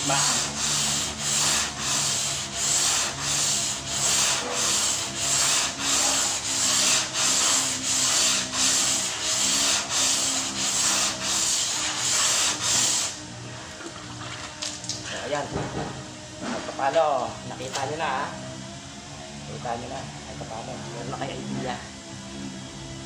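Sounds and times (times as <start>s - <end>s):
sandpaper scraping back and forth: 0.0s - 13.2s.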